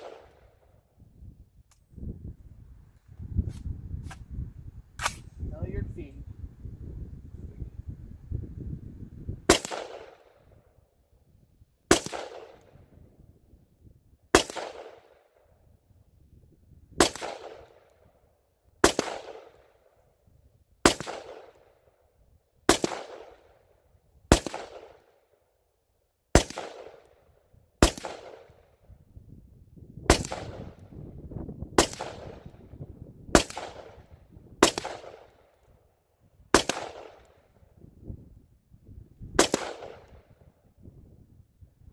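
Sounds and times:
rifle shots with echo: 0:00.0 - 0:00.8, 0:09.5 - 0:10.6, 0:11.9 - 0:13.0, 0:14.3 - 0:15.5, 0:17.0 - 0:18.0, 0:18.8 - 0:20.0, 0:20.8 - 0:21.8, 0:22.7 - 0:23.6, 0:24.3 - 0:25.4, 0:26.3 - 0:28.8, 0:30.1 - 0:30.9, 0:31.8 - 0:35.7, 0:36.5 - 0:37.6, 0:39.4 - 0:40.4.

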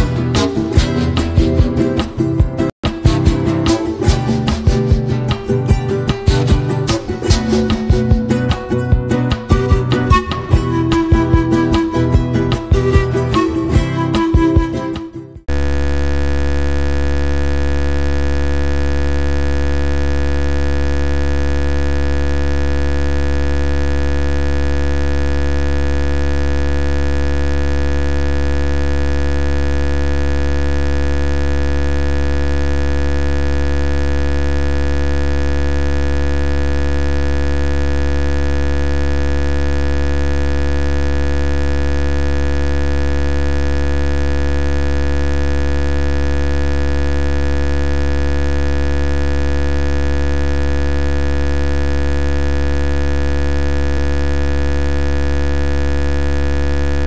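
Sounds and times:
steady low hum: 0:15.5 - 0:55.7.

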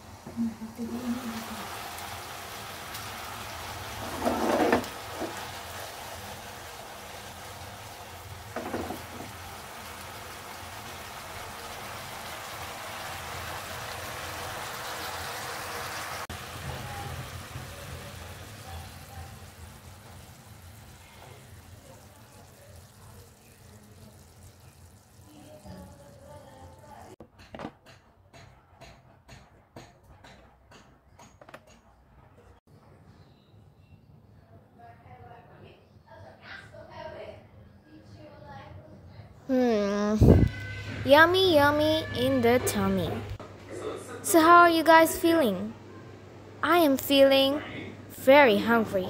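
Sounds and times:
birds sizzling in frying pan: 0:00.0 - 0:27.2.

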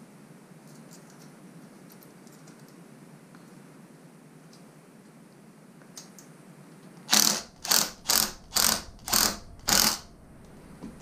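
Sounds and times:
short ratcheting rasps: 0:07.1 - 0:10.1.

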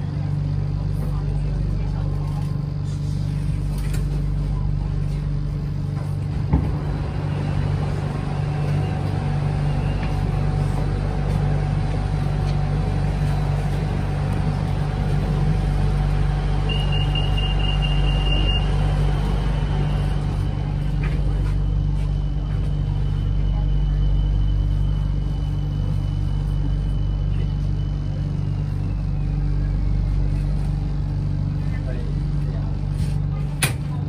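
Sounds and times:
train car low hum: 0:00.0 - 0:34.0
high steady beep: 0:16.6 - 0:18.8.

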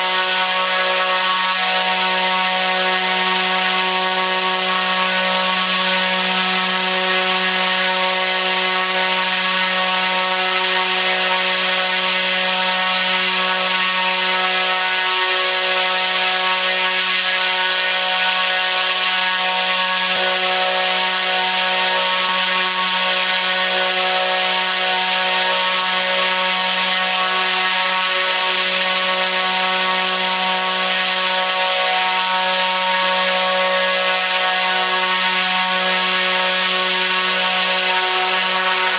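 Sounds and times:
propeller motor droning: 0:00.0 - 0:38.9.

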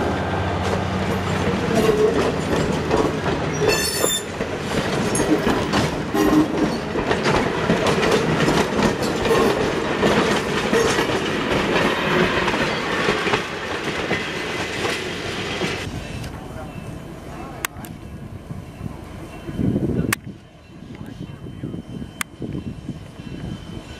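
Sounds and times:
train rumble: 0:00.0 - 0:23.9
train wheels clicking over rail joints: 0:00.6 - 0:16.4.

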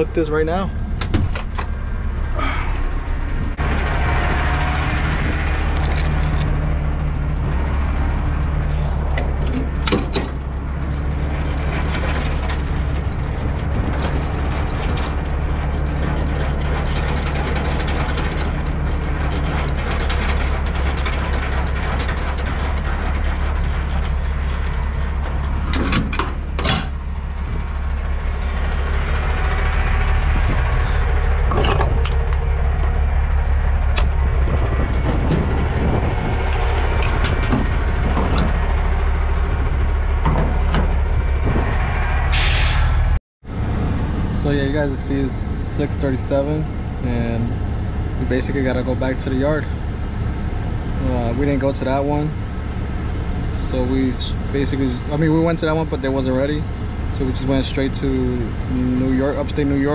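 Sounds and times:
diesel engine idling: 0:00.0 - 0:25.7, 0:26.3 - 0:59.9
metal clanks and knocks: 0:05.8 - 0:33.0, 0:33.7 - 0:41.7.

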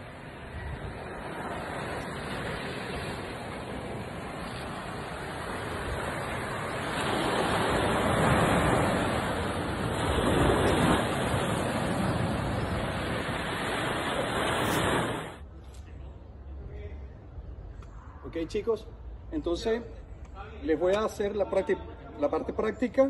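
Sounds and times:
waves breaking on stony beach: 0:00.0 - 0:15.4.

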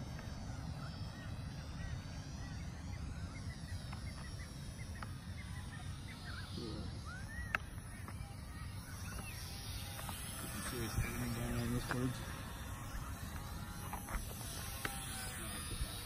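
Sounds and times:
electric motor whine: 0:00.0 - 0:16.0
birds chirping and calling: 0:01.1 - 0:13.2.

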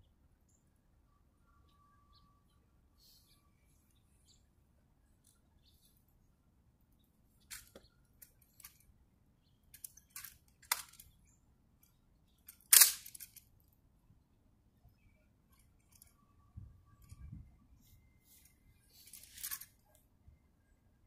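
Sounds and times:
rifle clicks and hand slaps: 0:12.7 - 0:13.4.

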